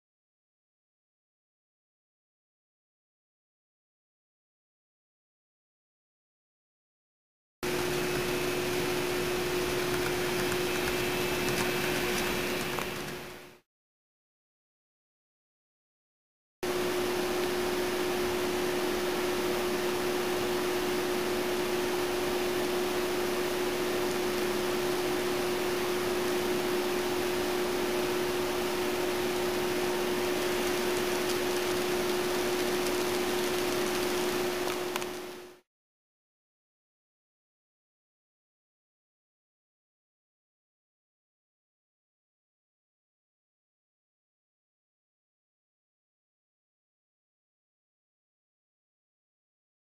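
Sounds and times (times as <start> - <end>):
steady hum: 7.6 - 13.6, 16.6 - 35.6.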